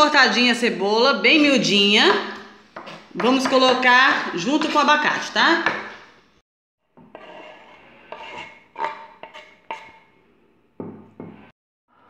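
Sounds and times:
knife scraping wooden board: 2.8 - 3.2, 7.0 - 10.1.

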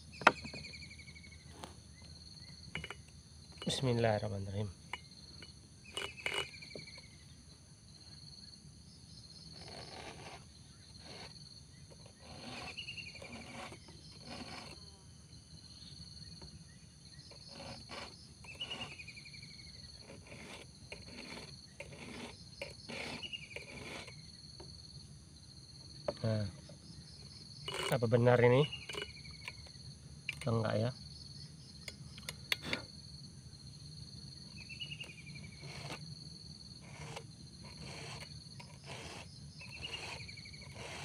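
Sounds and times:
insects buzzing: 0.0 - 41.0
file rasping on chainsaw chain: 5.4 - 7.0, 9.4 - 15.0, 17.3 - 24.2, 27.5 - 29.7, 34.5 - 36.1, 36.7 - 41.0.

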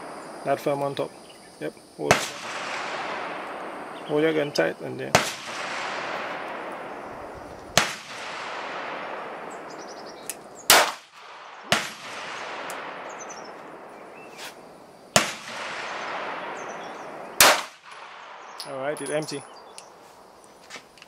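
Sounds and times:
pistol shots with echo: 2.0 - 14.3, 15.1 - 18.6.

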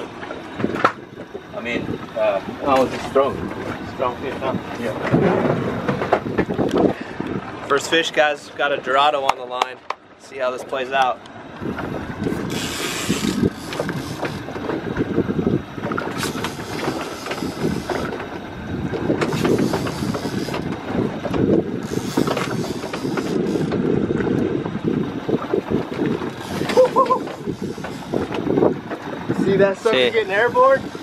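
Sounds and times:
wind buffeting microphone: 0.0 - 9.8, 10.8 - 31.0
low rumble of boat: 0.0 - 31.0.

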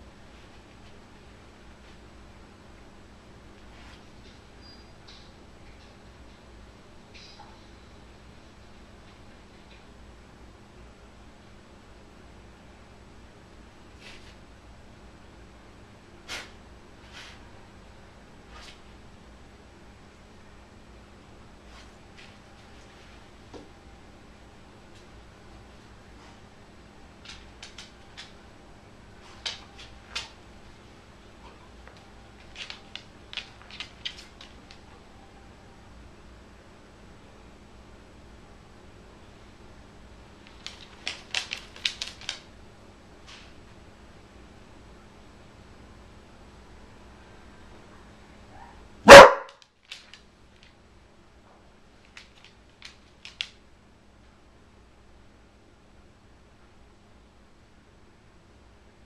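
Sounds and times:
dog paws clicking on floor: 27.1 - 28.5, 29.2 - 35.0, 40.4 - 42.6, 49.1 - 50.8, 51.9 - 53.6
dog barking: 48.5 - 49.6.

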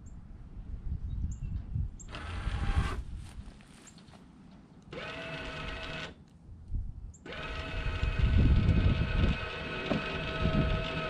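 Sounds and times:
electric jack motors whining: 2.1 - 3.0, 4.9 - 6.2, 7.2 - 11.0.

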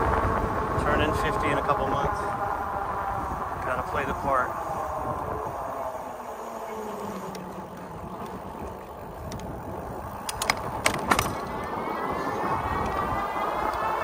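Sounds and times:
wind noise: 0.0 - 6.4, 7.0 - 14.0
electric motor whine: 0.0 - 14.0
tyre noise: 0.0 - 14.0
sharp clicks and knocks: 10.2 - 11.5.

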